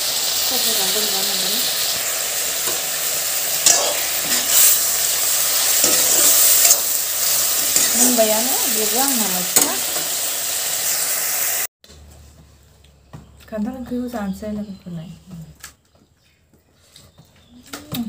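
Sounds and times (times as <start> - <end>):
curry sizzling in a pan: 0.0 - 11.7
spatula scraping a metal pan: 3.6 - 4.9, 5.6 - 8.3.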